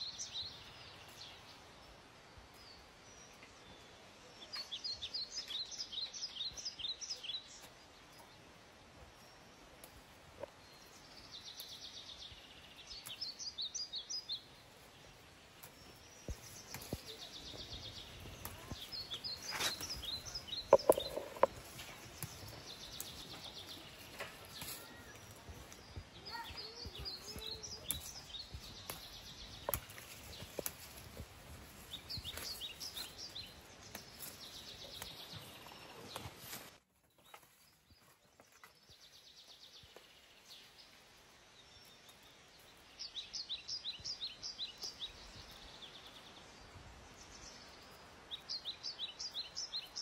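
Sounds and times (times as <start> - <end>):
plants rustling when handled: 14.8 - 38.6
songbird trilling: 16.4 - 23.8.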